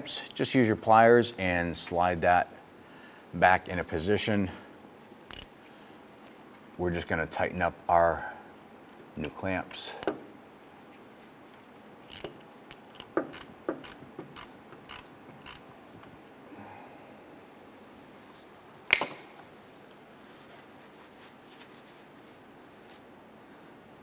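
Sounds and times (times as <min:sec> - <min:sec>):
ratchet clicking: 0:05.3 - 0:05.6, 0:12.1 - 0:15.7.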